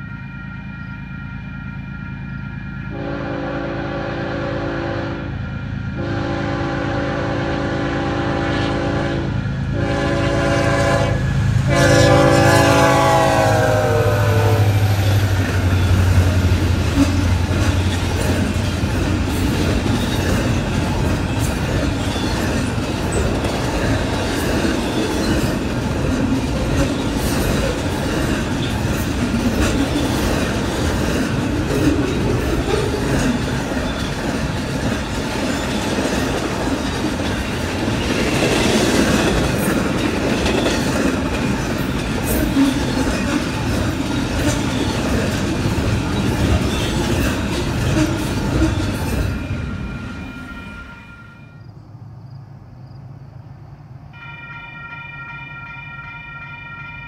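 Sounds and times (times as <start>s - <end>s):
freight train rolling past: 0.0s - 57.0s
wheels clacking over rail joints: 14.8s - 49.6s.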